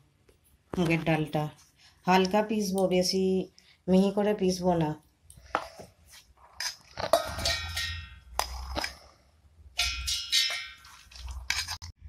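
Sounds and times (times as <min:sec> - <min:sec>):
steel containers knocking and ringing: 0:07.1 - 0:08.5, 0:09.8 - 0:11.0.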